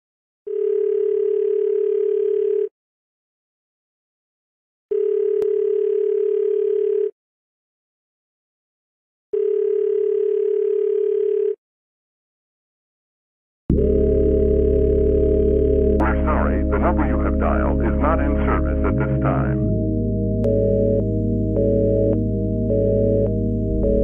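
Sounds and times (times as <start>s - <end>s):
telephone ringback tone: 0.5s - 2.7s, 4.9s - 7.1s, 9.4s - 11.6s, 20.5s - 24.0s.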